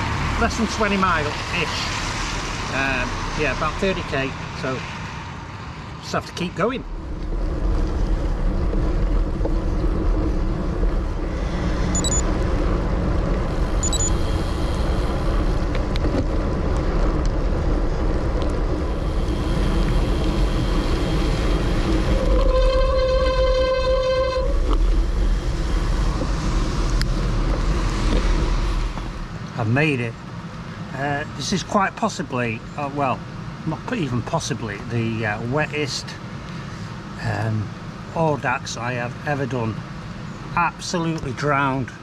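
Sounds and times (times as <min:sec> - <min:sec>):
wet road noise: 0:00.0 - 0:42.0
wind rushing: 0:06.9 - 0:23.2
steady pitched tone: 0:13.7 - 0:14.3.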